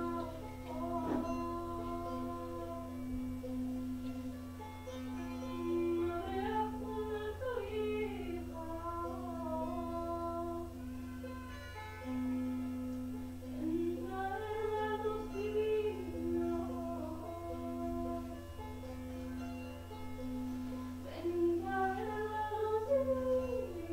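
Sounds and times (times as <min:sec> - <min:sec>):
wordless singing: 0:00.0 - 0:03.3, 0:05.4 - 0:10.8, 0:13.6 - 0:18.5, 0:21.0 - 0:23.9.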